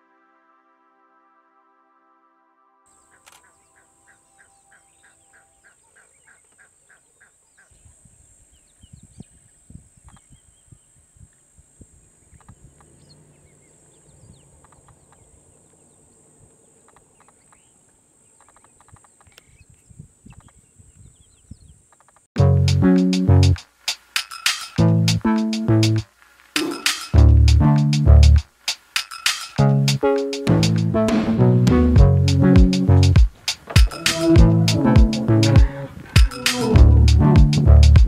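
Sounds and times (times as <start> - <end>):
geese honking: 3.0 - 7.4, 33.6 - 37.4
steady high hiss: 21.8 - 38.0
low rumbles and knocks: 30.6 - 38.0.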